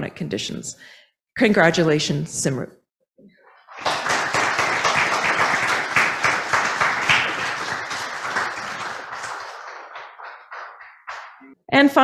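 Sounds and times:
audience applauding: 3.6s - 11.6s.

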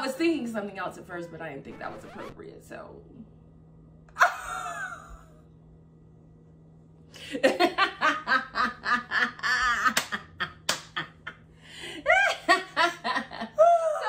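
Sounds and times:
women laughing: 4.2s - 5.4s, 7.2s - 14.0s.

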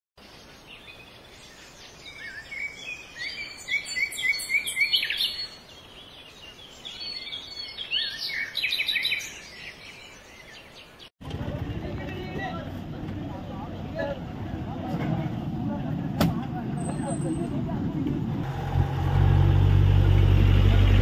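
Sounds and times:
birds chirping: 0.2s - 14.8s.

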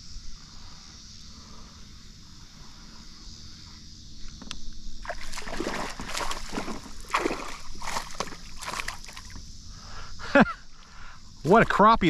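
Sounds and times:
water splashing beside kayak: 5.0s - 9.4s.

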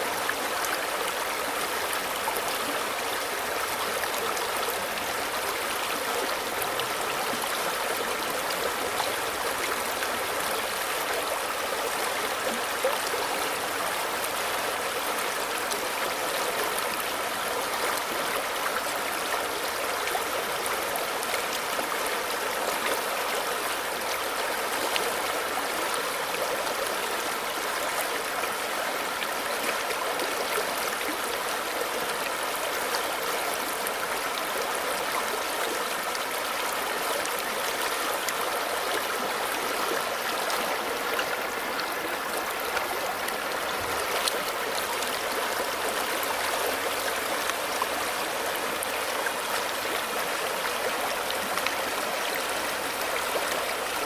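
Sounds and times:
stream babbling over stones: 0.0s - 54.0s.

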